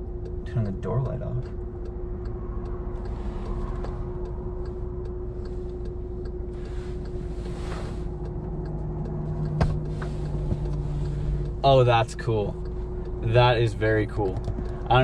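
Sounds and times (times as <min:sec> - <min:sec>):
car cabin rumble and hum: 0:00.0 - 0:15.0
light ticking: 0:00.0 - 0:15.0
seat-back click: 0:06.6 - 0:11.5.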